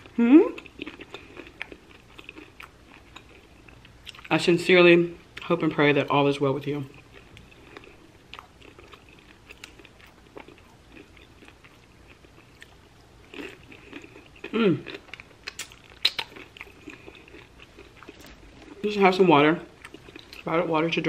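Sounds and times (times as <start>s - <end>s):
chewing crunchy chips: 0.0s - 4.5s, 6.7s - 20.6s
person humming: 0.2s - 0.6s, 14.5s - 14.8s.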